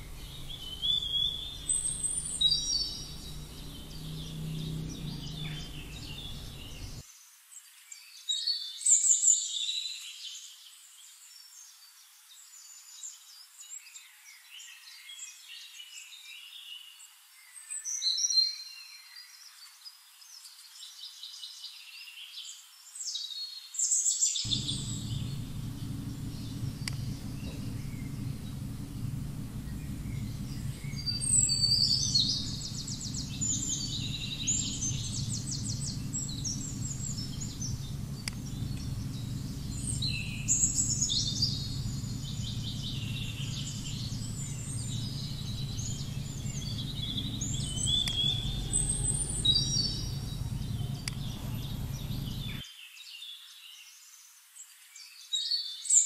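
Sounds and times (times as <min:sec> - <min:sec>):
birds chirping: 0:00.0 - 0:07.0, 0:24.5 - 0:52.6
steady low hum: 0:00.0 - 0:07.0, 0:24.5 - 0:52.6.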